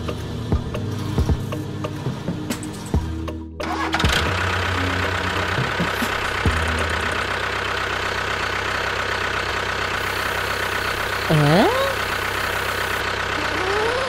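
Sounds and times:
engine idling: 0:00.0 - 0:14.0.

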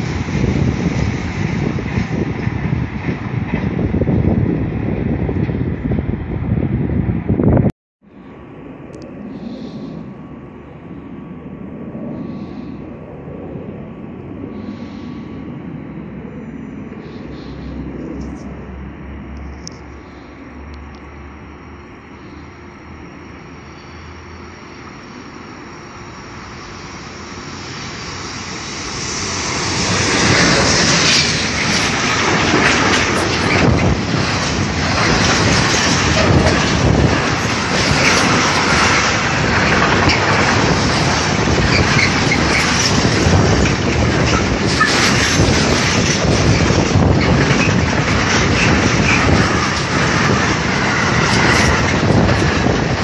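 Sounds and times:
freight train passing: 0:00.0 - 0:53.0
wheels clattering over rails: 0:28.2 - 0:53.0.

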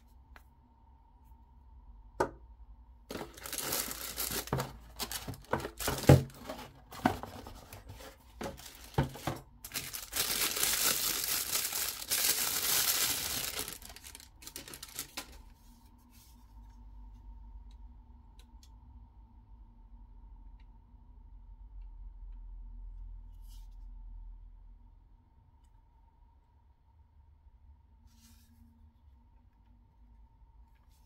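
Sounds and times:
packaging tearing: 0:03.1 - 0:07.8, 0:08.5 - 0:15.4
packaging knocks and crinkles: 0:03.1 - 0:15.4.

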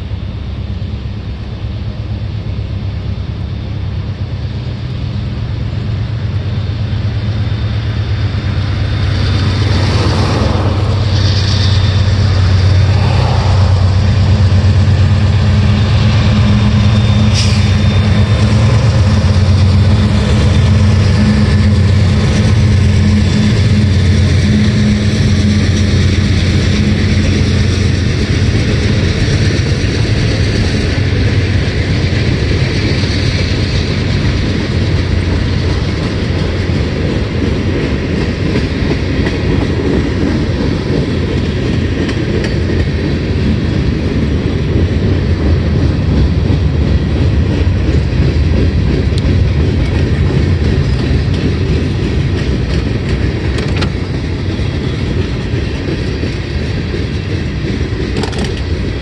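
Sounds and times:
train wheels rumbling on rail: 0:00.0 - 0:59.0
rail clicks: 0:01.6 - 0:59.0.

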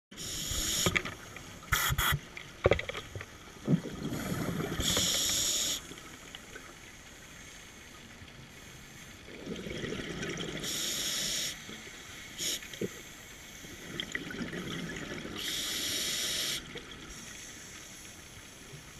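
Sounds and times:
regulator hissing inhales: 0:04.2 - 0:05.8, 0:15.4 - 0:18.4.

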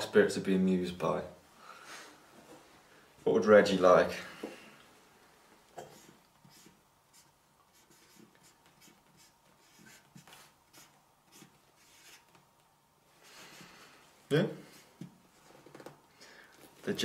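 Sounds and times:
marker writing on cardboard: 0:05.8 - 0:12.4.

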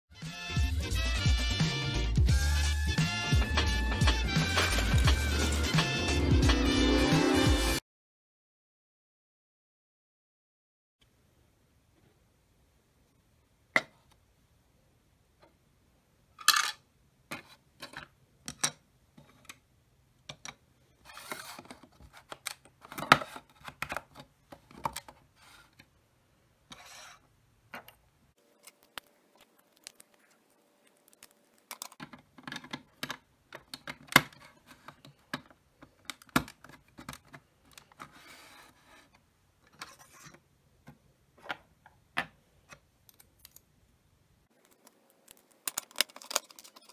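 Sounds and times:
plastic pieces clicking: 0:30.9 - 0:38.1, 0:44.5 - 0:46.9
plastic pieces rattling: 0:31.0 - 0:35.0, 0:44.6 - 0:46.9.

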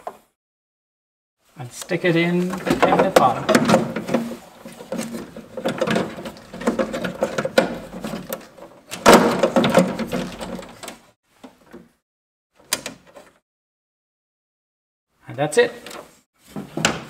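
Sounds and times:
rustling and scraping of cables: 0:01.7 - 0:11.2.

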